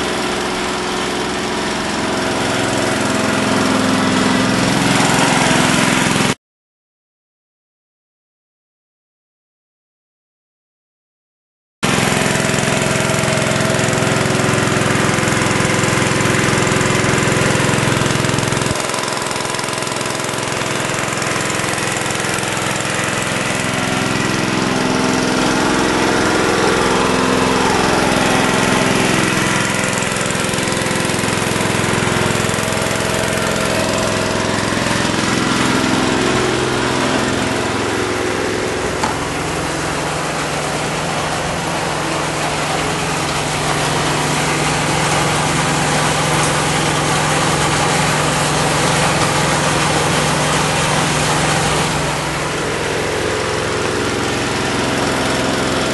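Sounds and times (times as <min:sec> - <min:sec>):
engine-driven water pump running: 0:00.0 - 0:06.4, 0:11.8 - 0:55.9.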